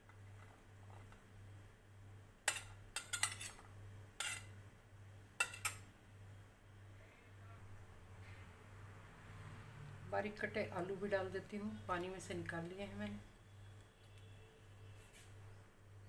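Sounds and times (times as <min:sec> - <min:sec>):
metal spoon clinking and scraping: 0:02.4 - 0:04.5, 0:05.4 - 0:05.9.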